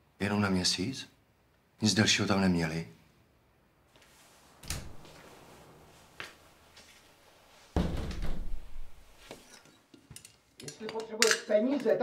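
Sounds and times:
thump: 7.8 - 8.8.

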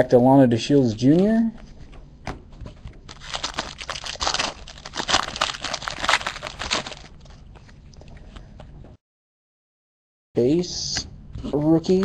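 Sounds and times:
foil wrapper crinkling and tearing: 3.1 - 7.3.

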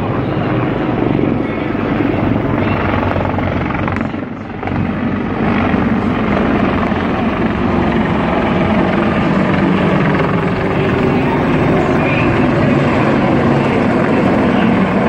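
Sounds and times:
helicopter rotor beating: 0.0 - 15.0.

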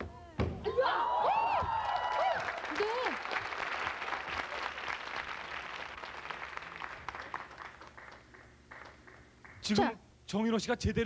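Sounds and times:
audience applauding: 1.7 - 9.6.

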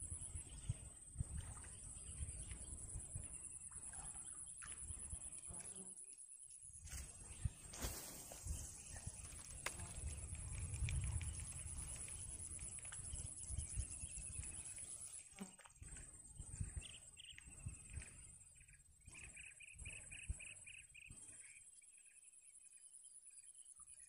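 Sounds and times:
low wind rumble: 6.9 - 14.8.

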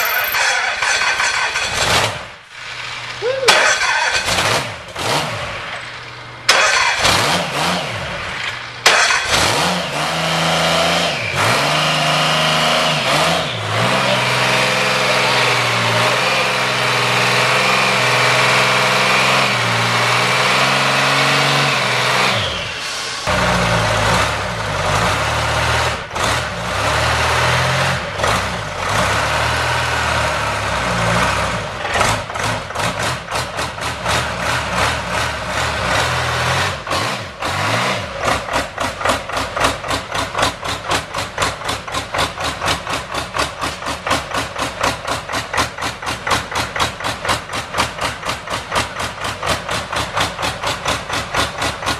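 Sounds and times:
diesel engine revving: 0.0 - 51.9
engine knocking pulse: 38.2 - 51.9.

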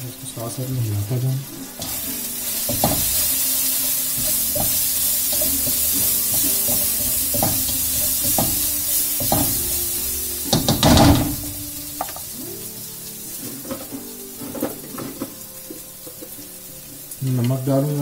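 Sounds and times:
spices sizzling in oil: 0.0 - 18.0
spatula scraping and knocking pan: 1.8 - 12.4.

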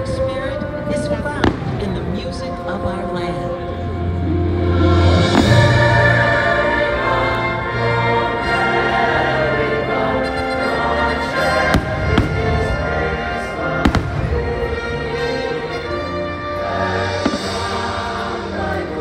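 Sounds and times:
orchestral music: 0.0 - 19.0
firework bangs: 1.4 - 2.1, 11.6 - 14.9, 17.0 - 18.4.

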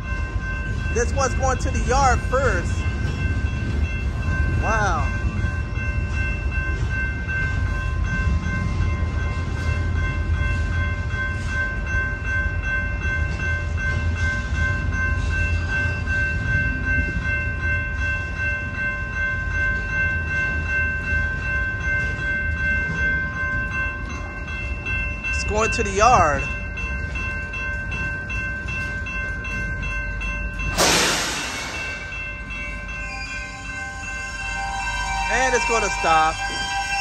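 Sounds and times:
freight train rumbling past: 0.0 - 37.0
high ringing tones: 0.0 - 37.0.

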